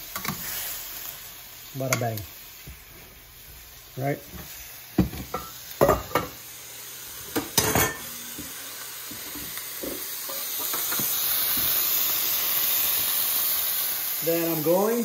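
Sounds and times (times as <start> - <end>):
steaks sizzling in a skillet: 0.0 - 15.0
utensils clanking on cookware: 5.1 - 6.4, 7.3 - 8.6, 9.2 - 11.2.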